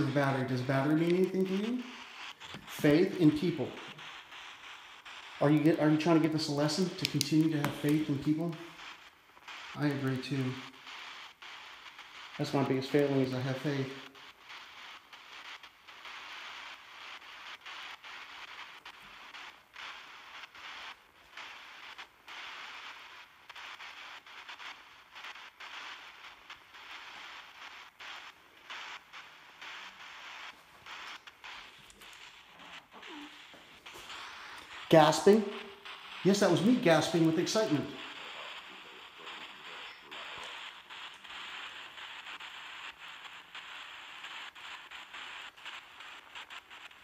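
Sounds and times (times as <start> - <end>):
choppy radio static: 0.0 - 47.0
clicks: 31.0 - 36.4.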